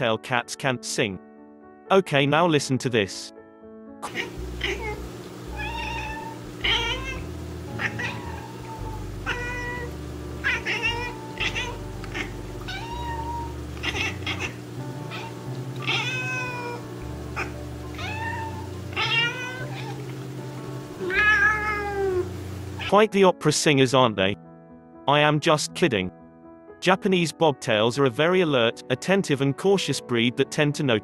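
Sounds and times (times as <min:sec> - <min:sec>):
quiet background music: 0:00.0 - 0:31.0
cat meowing: 0:04.0 - 0:20.2, 0:21.0 - 0:22.9.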